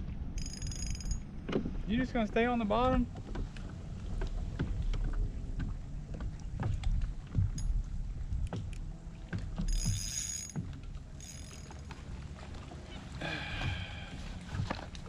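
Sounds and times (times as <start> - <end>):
water: 0.0 - 15.0
knocks and clicks from kayak gear: 0.4 - 1.8, 2.7 - 12.6, 14.4 - 15.0
wind rumble: 1.2 - 15.0
spinning reel winding: 9.7 - 10.6, 11.2 - 11.7.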